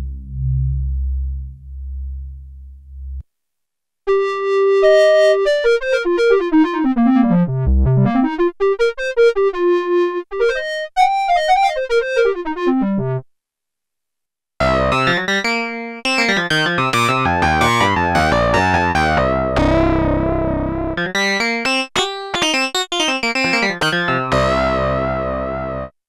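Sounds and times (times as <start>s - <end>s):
synth bass line: 0.0s - 3.2s, 16.2s - 21.8s, 22.4s - 25.9s
analog synthesizer notes and chords: 14.6s - 25.9s.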